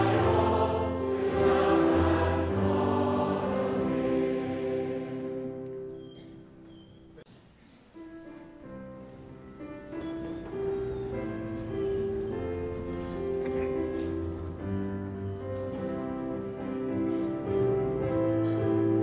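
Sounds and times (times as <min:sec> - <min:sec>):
choir singing with accompaniment: 0:00.0 - 0:05.9
music with sustained notes: 0:00.0 - 0:06.6, 0:08.0 - 0:19.0.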